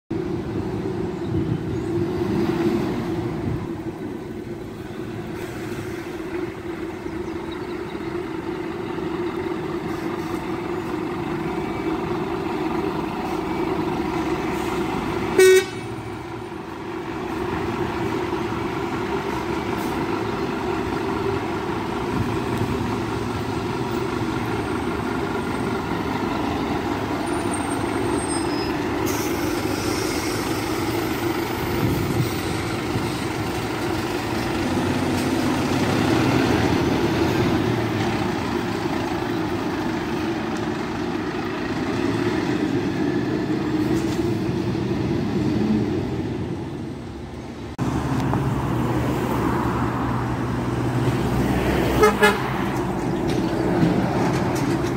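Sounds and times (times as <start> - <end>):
diesel engine running: 0.1 - 54.9
short loud horn toot: 15.4 - 15.9.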